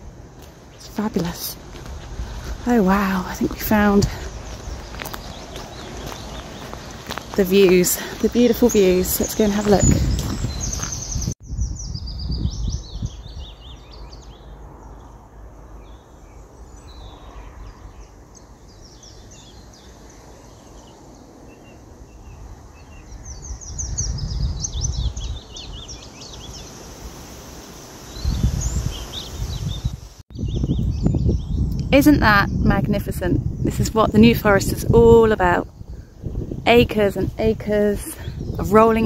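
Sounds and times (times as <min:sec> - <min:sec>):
wind rumble on microphone: 0:00.0 - 0:27.2, 0:28.1 - 0:39.0
songbirds chirping and singing: 0:00.4 - 0:15.2.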